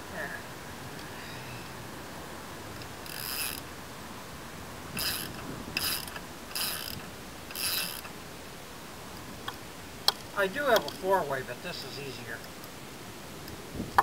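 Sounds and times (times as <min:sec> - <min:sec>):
ratchet wrench clicking: 0:03.0 - 0:03.6, 0:05.0 - 0:08.1.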